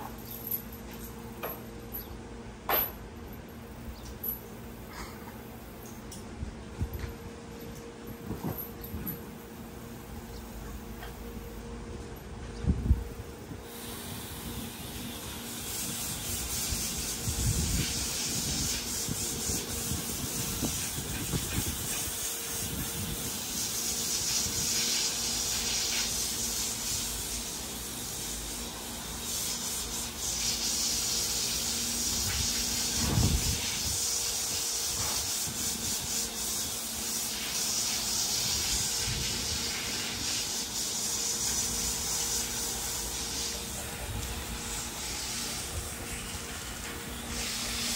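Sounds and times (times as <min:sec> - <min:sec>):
hose water spraying and splashing: 0:13.6 - 0:47.9.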